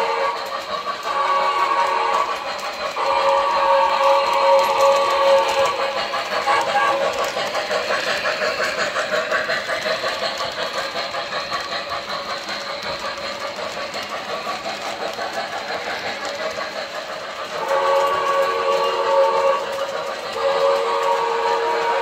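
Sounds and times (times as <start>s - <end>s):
multi-tone steam whistle: 0.0s - 8.9s, 15.5s - 22.0s
model train clattering past: 0.0s - 22.0s.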